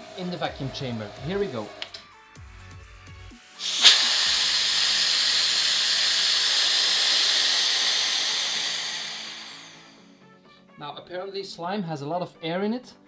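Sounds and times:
air hissing into vacuum chamber: 0:03.4 - 0:10.2.

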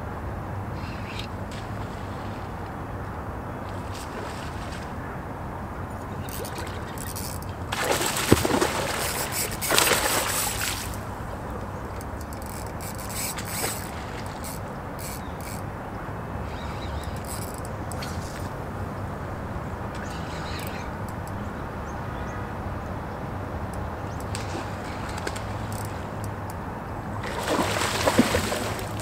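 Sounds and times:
fish thrashing and splashing: 0:06.2 - 0:15.6, 0:27.2 - 0:29.0.

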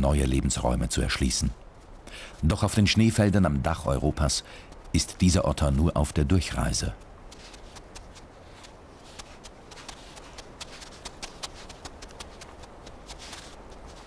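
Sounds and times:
paws crunching on snow: 0:06.4 - 0:14.0.

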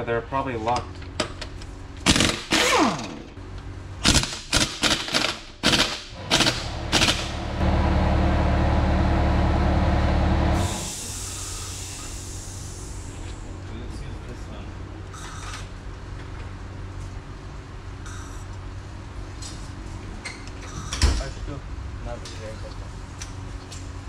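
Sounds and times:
impact wrench hammering: 0:04.1 - 0:07.5.

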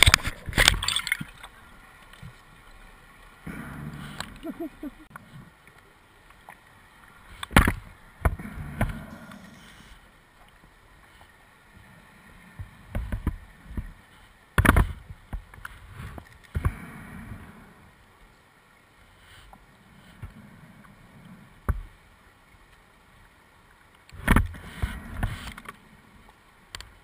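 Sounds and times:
diver breathing through regulator: 0:03.4 - 0:04.5.

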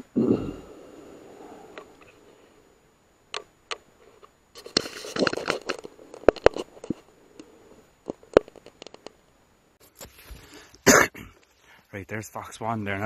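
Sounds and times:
handling rustles: 0:04.0 - 0:09.2.

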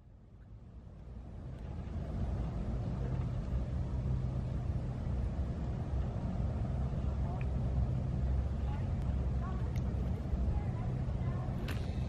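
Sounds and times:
low engine-like rumble: 0:00.0 - 0:12.0.

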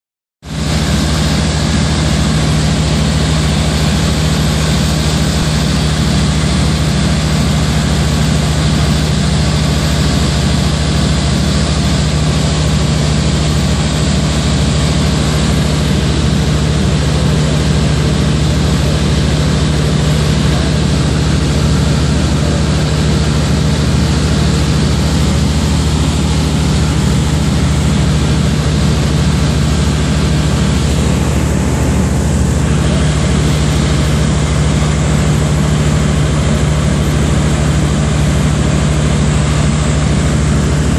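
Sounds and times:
airplane engine droning: 0:00.5 - 0:40.9
airflow rushing: 0:11.2 - 0:40.9.

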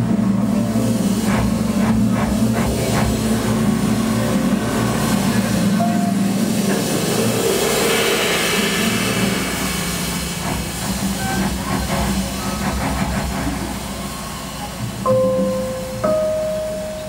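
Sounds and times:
cymbal wash: 0:03.1 - 0:12.6.

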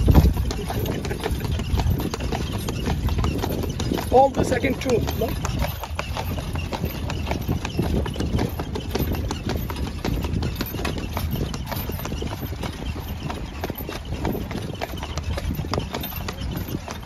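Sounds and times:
horse hooves clip-clopping on asphalt: 0:00.0 - 0:17.0.

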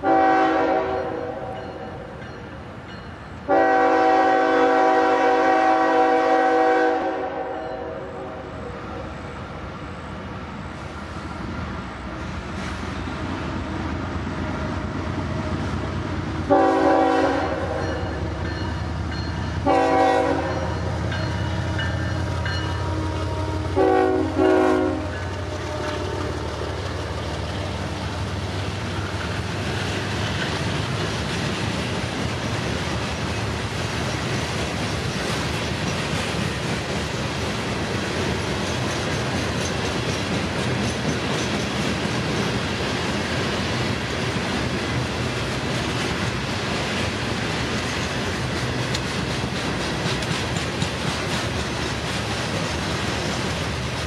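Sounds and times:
train air horn blasts: 0:00.0 - 0:01.6, 0:03.5 - 0:09.0, 0:16.5 - 0:18.2, 0:19.6 - 0:21.0, 0:22.7 - 0:26.6
diesel locomotives rumbling: 0:00.0 - 0:54.0
freight cars rolling on rails: 0:08.4 - 0:54.0.

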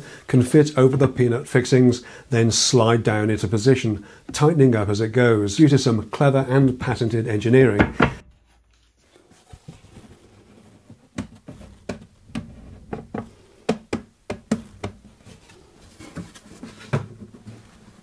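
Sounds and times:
wood and clamps knocking: 0:07.7 - 0:08.3.

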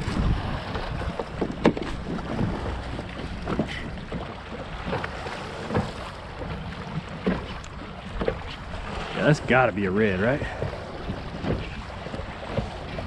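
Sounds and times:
wind on microphone: 0:00.0 - 0:04.2
water slapping against hull: 0:00.0 - 0:13.0.

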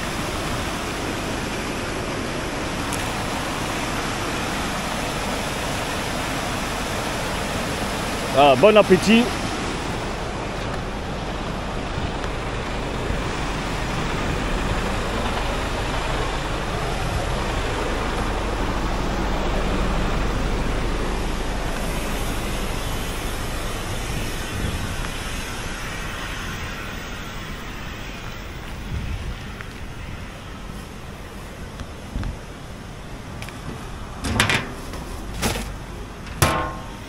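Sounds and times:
river rapids rushing: 0:00.0 - 0:24.2
diesel truck engine idling: 0:00.0 - 0:28.7.

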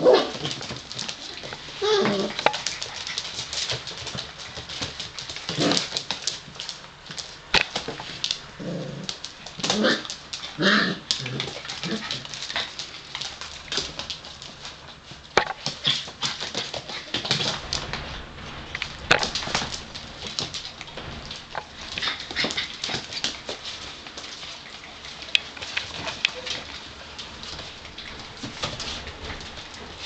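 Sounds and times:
puppies whimpering and yipping: 0:01.2 - 0:03.2.

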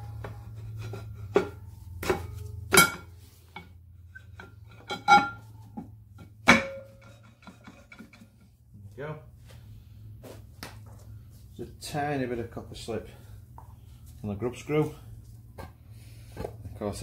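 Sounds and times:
steady low hum: 0:00.0 - 0:17.0
metal clanks and knocks: 0:00.1 - 0:08.6.

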